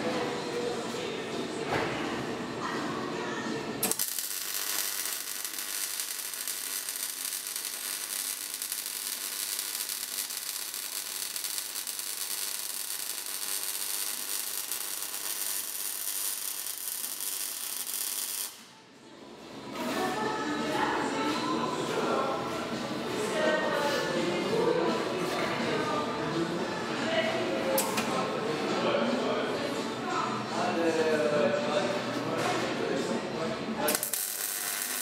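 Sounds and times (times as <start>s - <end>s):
welding arc crackling: 3.8s - 18.7s, 33.9s - 35.0s.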